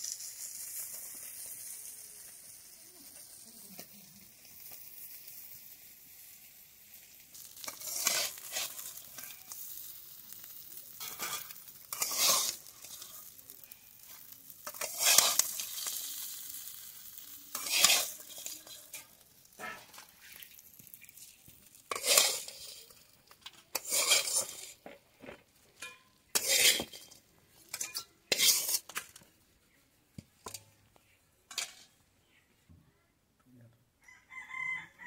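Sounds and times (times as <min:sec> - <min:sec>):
metal spatula scraping a wok: 0:07.3 - 0:29.2, 0:31.5 - 0:32.0.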